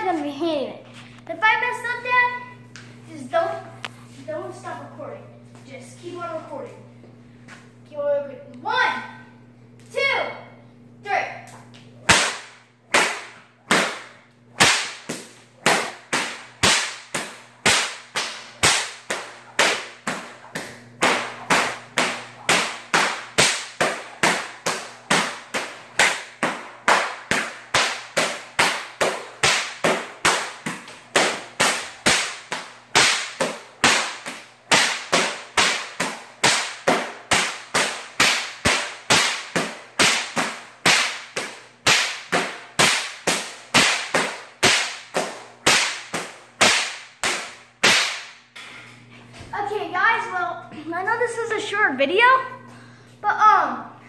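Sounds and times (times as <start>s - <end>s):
whip cracking: 12.1s - 48.4s.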